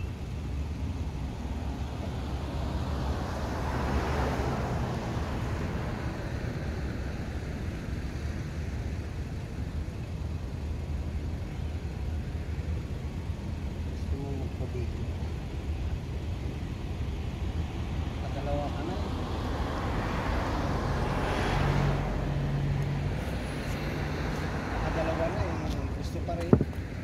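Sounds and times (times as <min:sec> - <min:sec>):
low outdoor rumble: 0:00.0 - 0:27.0.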